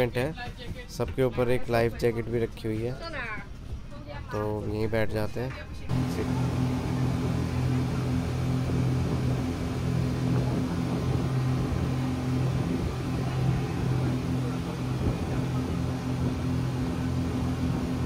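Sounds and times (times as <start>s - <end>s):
speedboat engines droning: 5.9s - 18.0s.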